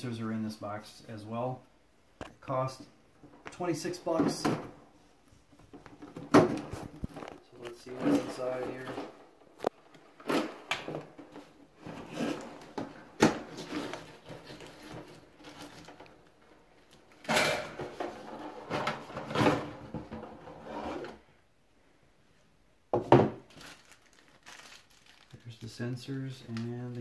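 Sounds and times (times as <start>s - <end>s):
cardboard scraping and rubbing: 11.8s - 12.7s, 20.4s - 21.2s.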